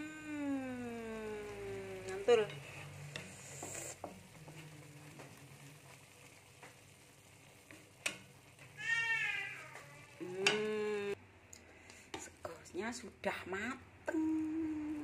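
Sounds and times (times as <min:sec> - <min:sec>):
hot oil sizzling: 0:00.0 - 0:11.2
spatula stirring in wok: 0:01.4 - 0:10.9.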